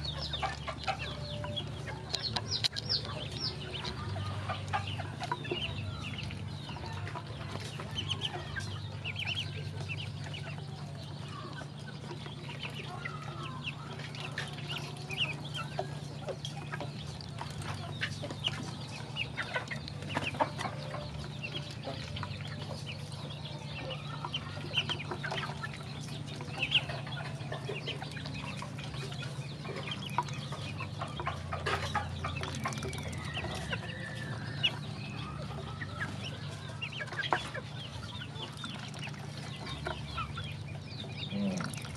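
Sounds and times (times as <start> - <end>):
ducklings peeping and chirping: 0.0 - 41.9.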